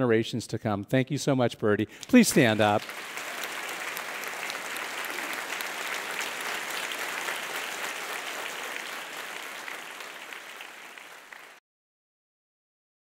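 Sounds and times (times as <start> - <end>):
audience applause: 2.1 - 11.6.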